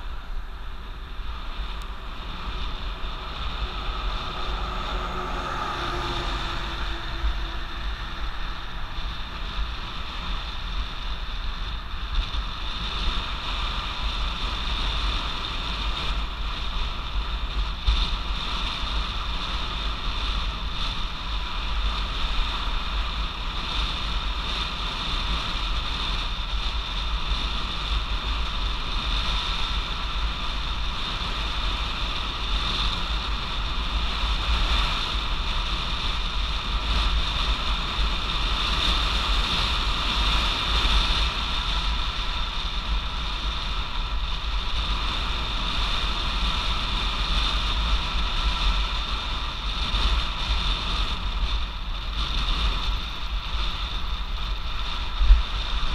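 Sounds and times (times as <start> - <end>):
high whine: 0.0 - 24.2
electric bike road noise: 0.0 - 55.9
wind buffeting microphone: 0.0 - 55.9.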